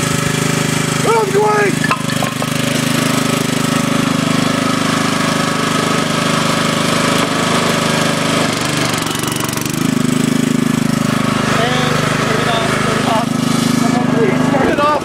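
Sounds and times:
log splitter small engine running: 0:00.0 - 0:15.0.

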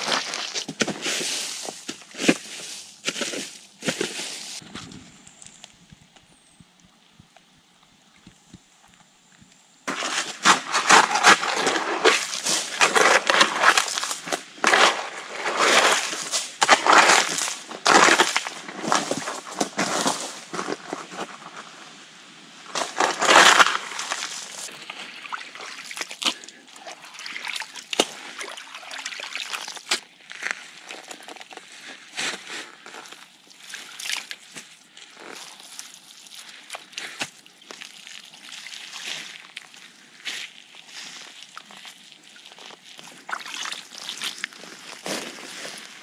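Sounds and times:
shovel scraping wet stony mud: 0:00.0 - 0:04.6, 0:09.9 - 0:21.1, 0:22.7 - 0:30.1
muddy water splashing: 0:09.9 - 0:19.6, 0:22.8 - 0:30.0, 0:40.5 - 0:44.6
hands sloshing in muddy water: 0:23.0 - 0:30.0, 0:40.5 - 0:44.4.

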